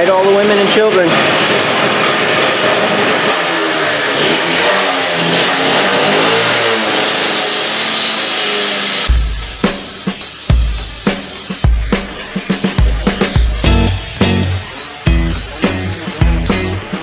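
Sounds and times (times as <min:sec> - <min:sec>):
abrasive disc cutting steel: 0:00.2 - 0:17.0
cut-off saw engine revving: 0:00.5 - 0:17.0
music with heavy drum beat: 0:08.8 - 0:17.0.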